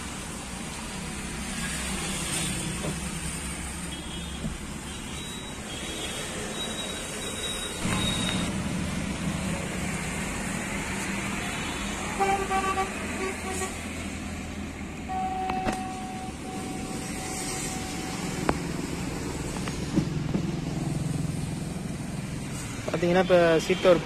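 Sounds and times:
road traffic rumble: 0.0s - 24.0s
vehicle horns honking: 12.1s - 13.8s, 15.1s - 18.2s.

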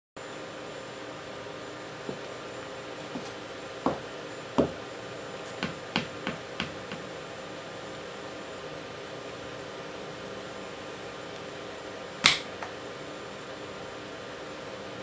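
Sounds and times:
boot heels knocking on tiled floor: 3.1s - 4.8s.

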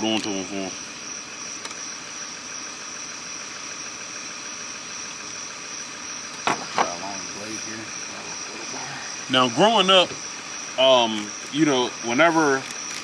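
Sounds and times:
crickets chirping: 0.0s - 13.0s
sharp knock: 6.4s - 7.0s.

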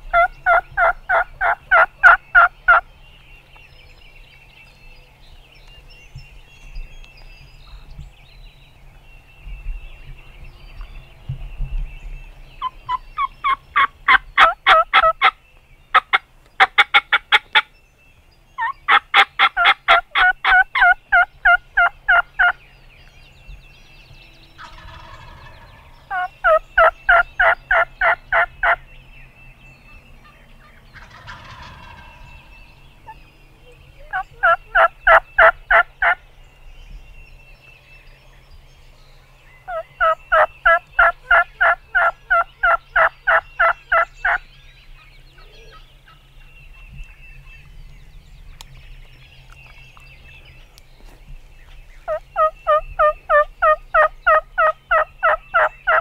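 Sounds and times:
turkeys gobbling: 0.1s - 2.8s, 12.6s - 17.6s, 18.6s - 22.6s, 24.6s - 28.8s, 30.6s - 33.3s, 34.0s - 36.2s, 39.7s - 44.4s, 52.0s - 56.0s.

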